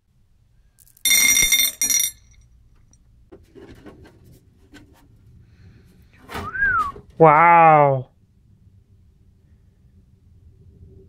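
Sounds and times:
screws clinking in glass dish: 0.8s - 2.4s.

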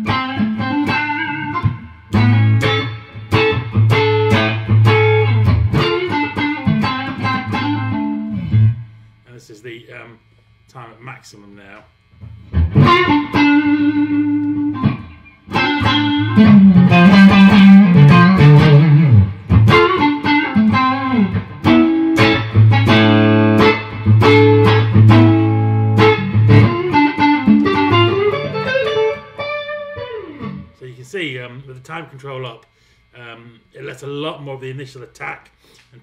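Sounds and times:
clean electric guitar: 0.0s - 9.6s, 11.7s - 30.8s.

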